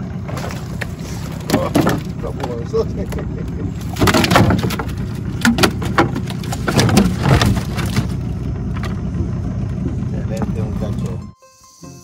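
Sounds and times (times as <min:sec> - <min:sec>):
low rumble: 0:00.0 - 0:11.4
sharp knocks and cracks: 0:00.3 - 0:02.6, 0:03.8 - 0:09.0.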